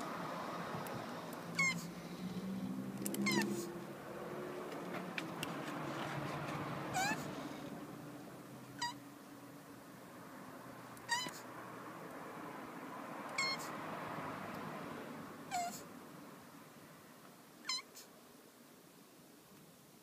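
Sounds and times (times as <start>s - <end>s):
tortoise squeaking: 1.3s - 3.8s, 6.9s - 7.5s, 8.8s - 9.0s, 11.0s - 11.5s, 13.3s - 13.7s, 15.5s - 15.9s, 17.6s - 18.1s.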